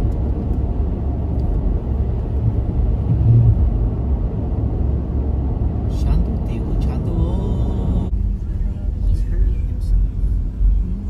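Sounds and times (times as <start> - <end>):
car road rumble: 0.0 - 11.0
brief low hum: 2.4 - 4.0.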